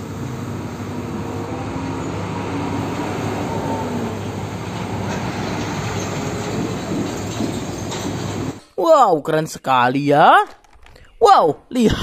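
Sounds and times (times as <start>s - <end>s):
truck engine rumble: 0.0s - 8.6s
tyre and road noise: 0.0s - 8.7s.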